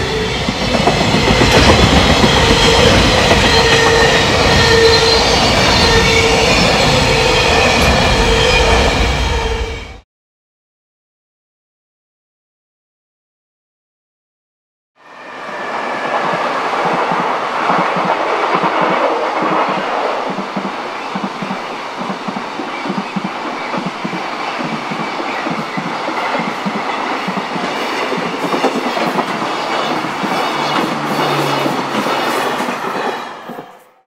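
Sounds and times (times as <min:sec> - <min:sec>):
freight train wheels clattering: 0:00.1 - 0:08.0, 0:16.1 - 0:33.8.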